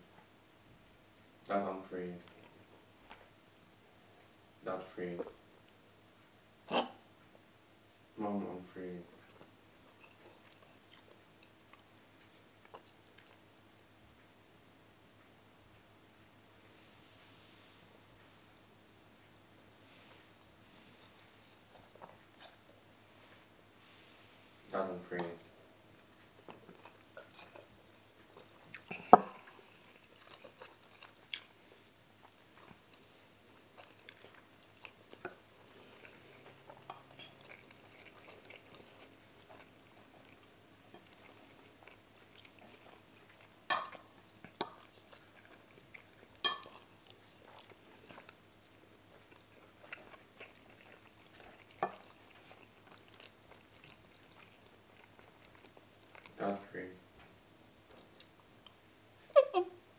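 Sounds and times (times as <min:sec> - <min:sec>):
chewing and eating: 0:09.2 - 0:14.3, 0:19.2 - 0:58.8
spoon or glass clacking on plate: 0:43.7 - 0:44.0, 0:46.4 - 0:46.7.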